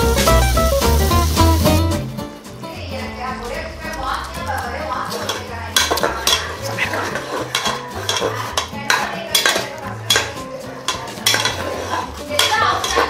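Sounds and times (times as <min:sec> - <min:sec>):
metal spoon clanking in pot: 0:05.1 - 0:13.0.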